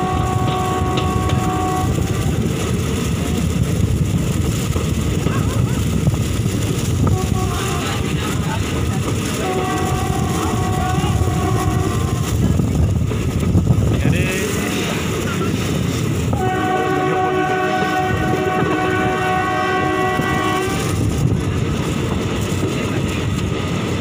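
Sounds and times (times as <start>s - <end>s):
locomotive horn blast: 0.0s - 2.4s, 7.0s - 7.9s, 9.3s - 12.4s, 16.3s - 21.0s
train running on track: 0.0s - 24.0s.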